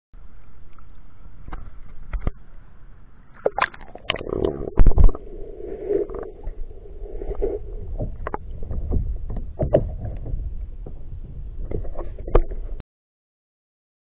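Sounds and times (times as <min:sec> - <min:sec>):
faint hum: 0:00.2 - 0:12.8
underwater water rush: 0:03.3 - 0:12.8
sharp knocks and clicks: 0:08.0 - 0:12.8.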